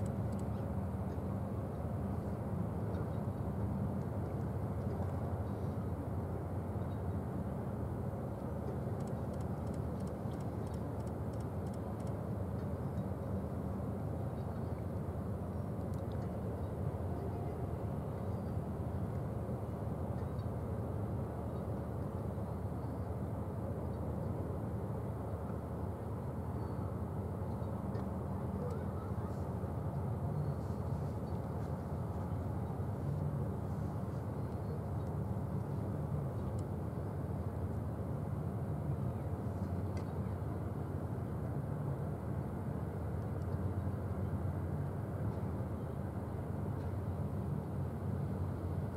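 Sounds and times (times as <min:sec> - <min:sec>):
faint high-pitched ticks: 0:00.0 - 0:01.3, 0:08.3 - 0:13.2, 0:15.6 - 0:16.4
faint click: 0:08.4 - 0:13.1, 0:15.6 - 0:16.4, 0:36.4 - 0:36.7, 0:39.6 - 0:40.2.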